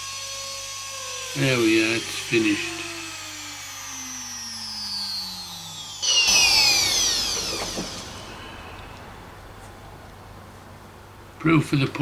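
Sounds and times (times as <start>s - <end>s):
router spindle whine winding down: 0.0s - 9.9s
high whine falling: 3.7s - 11.4s.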